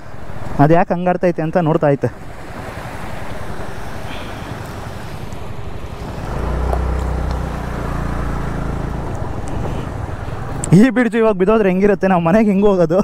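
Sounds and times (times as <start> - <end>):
scooter engine hum: 2.3 - 10.8.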